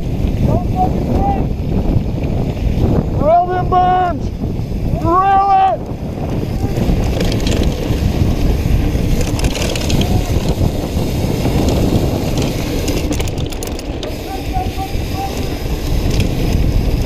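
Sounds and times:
wind rushing on microphone: 0.0s - 17.0s
tyres rumbling over dirt: 5.9s - 17.0s
crunching and rattling: 6.6s - 10.8s, 11.4s - 14.3s.

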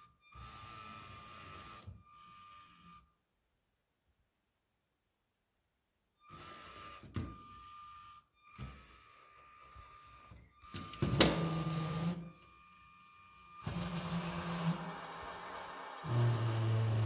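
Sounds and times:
small electric motors whining: 6.2s - 17.0s.

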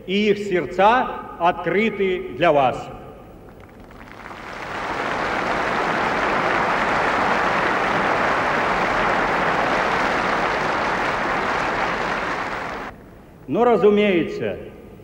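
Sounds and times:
stadium crowd applauding: 3.5s - 12.9s.

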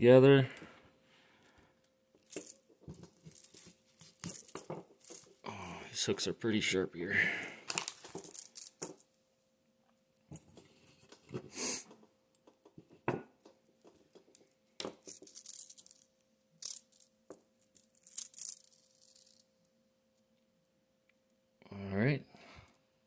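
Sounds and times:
faint steady hum: 0.0s - 23.0s
fishing line rustles and scrapes: 2.2s - 5.4s, 14.3s - 17.1s, 17.8s - 19.4s.

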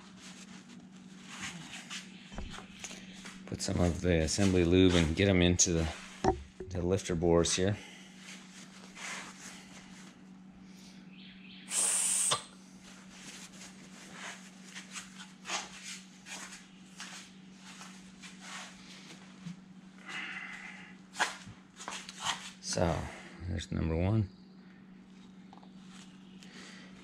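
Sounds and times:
steady low hum: 0.0s - 27.0s
aerosol spray hiss: 11.7s - 12.4s.

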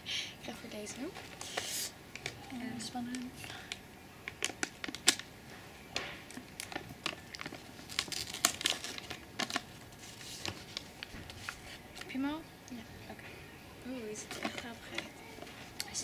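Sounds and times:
crisps crinkling in cardboard tube: 0.9s - 5.3s, 6.2s - 12.2s, 14.1s - 16.0s.

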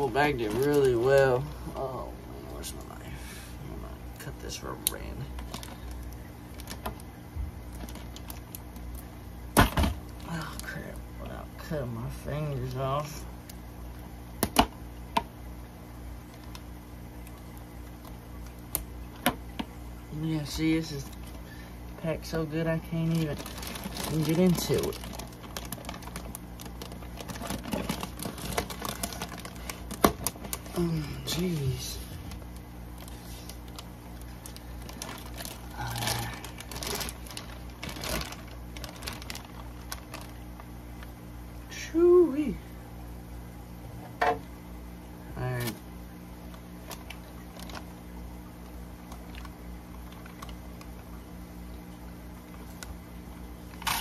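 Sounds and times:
plastic bag crinkling: 0.0s - 1.8s, 4.8s - 10.9s, 22.3s - 41.1s, 46.8s - 48.0s, 49.1s - 51.1s, 53.7s - 54.0s
faint handling sounds: 0.0s - 3.0s, 23.0s - 41.1s
steady low hum: 0.0s - 54.0s.

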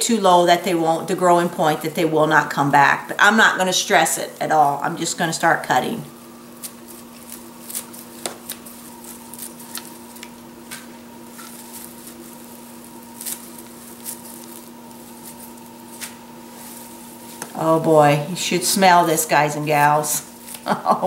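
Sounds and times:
steady electrical hum: 0.0s - 21.0s
shears snipping stems: 6.5s - 20.8s.

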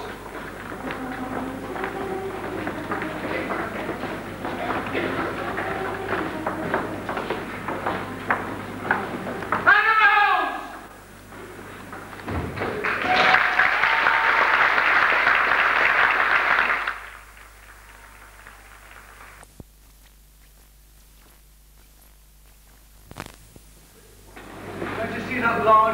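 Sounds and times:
audience applauding: 12.6s - 19.4s
low steady hum: 16.9s - 25.9s.

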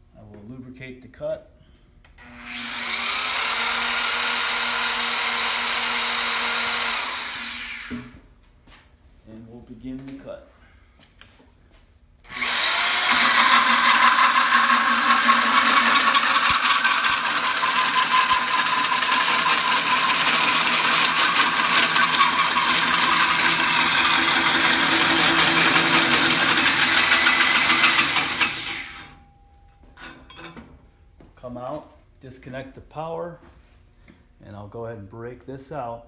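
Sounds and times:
hole saw grinding steel: 12.3s - 29.2s, 30.0s - 30.6s.

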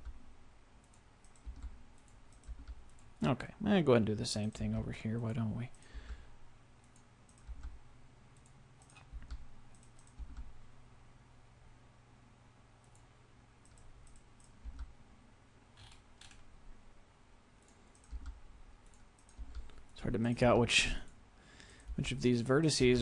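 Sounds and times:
steady low hum: 0.0s - 23.0s
mouse and keyboard clicks: 8.4s - 10.5s.

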